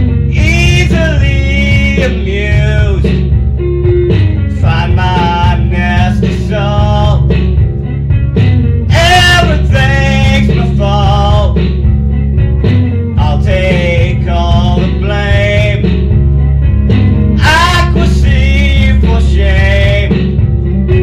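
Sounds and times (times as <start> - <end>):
man singing: 0.0 - 3.4, 4.4 - 7.6, 8.8 - 11.8, 13.1 - 16.1, 17.4 - 20.5
guitar: 0.0 - 21.0.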